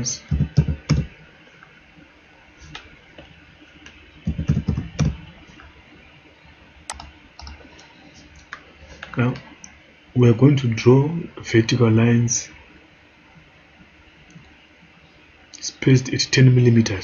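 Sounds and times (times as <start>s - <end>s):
computer keyboard typing: 0.3s - 1.1s, 4.2s - 5.2s, 6.9s - 7.9s.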